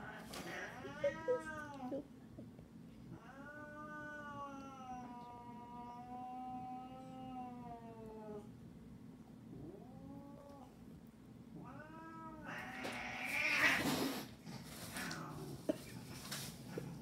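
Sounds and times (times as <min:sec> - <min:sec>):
cat meowing: 0:00.0 - 0:02.0, 0:11.6 - 0:13.8
cat harsh noisy cry: 0:03.1 - 0:08.4, 0:11.6 - 0:14.3.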